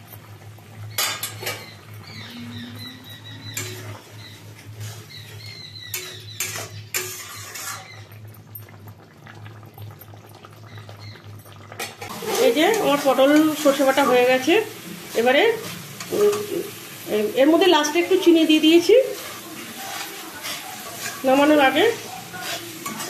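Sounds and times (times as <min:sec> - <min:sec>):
metal spatula scraping a pan: 0:00.9 - 0:08.2, 0:11.8 - 0:16.8, 0:18.0 - 0:23.0.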